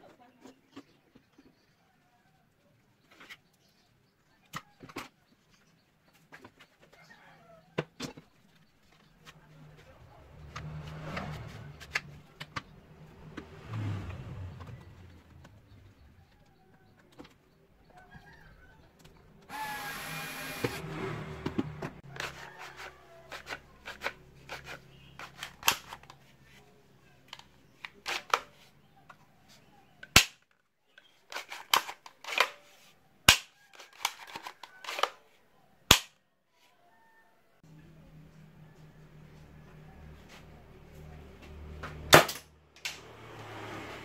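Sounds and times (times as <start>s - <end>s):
sharp loud snap: 35.9s - 36.2s.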